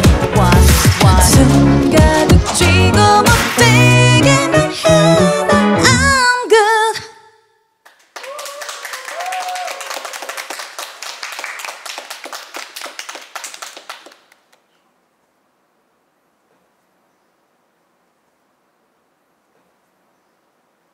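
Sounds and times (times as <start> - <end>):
small group clapping: 0.7 - 1.6, 3.3 - 3.8, 7.8 - 14.7.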